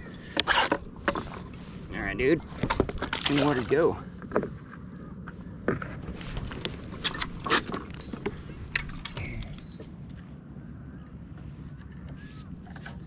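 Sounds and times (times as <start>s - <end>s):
metal fishing tackle clinking: 7.1s - 10.1s.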